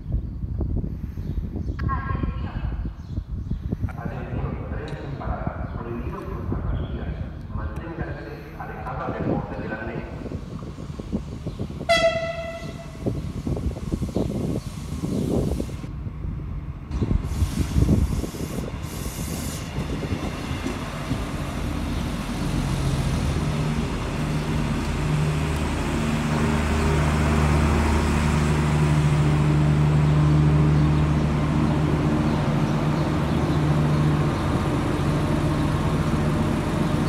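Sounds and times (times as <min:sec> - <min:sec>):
diesel train engine droning: 0:07.6 - 0:37.0.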